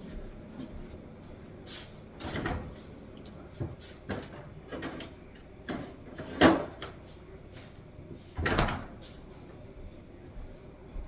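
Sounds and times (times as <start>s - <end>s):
kitchen cupboards opening and shutting: 2.2s - 2.8s, 3.5s - 7.0s, 8.3s - 9.0s.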